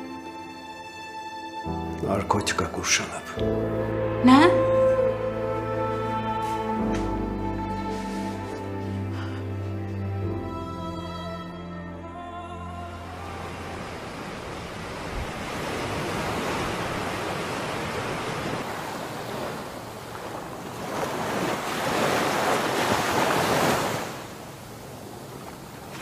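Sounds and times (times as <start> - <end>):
wind: 12.4 - 26.0
surf breaking on beach: 13.4 - 24.5.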